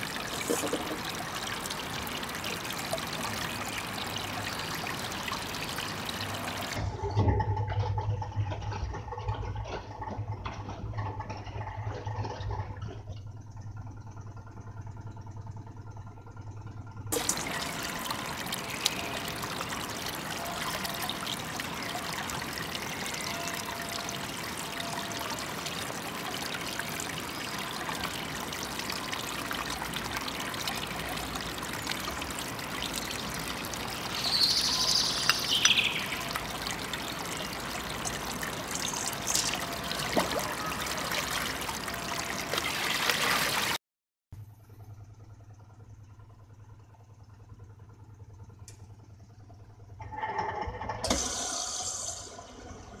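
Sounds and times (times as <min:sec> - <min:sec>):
stream running over rocks: 0:00.0 - 0:06.8, 0:17.2 - 0:43.8
water poured from metal bowl: 0:00.0 - 0:06.8, 0:17.2 - 0:43.8
cloth washed by hand splashing: 0:36.2 - 0:43.8.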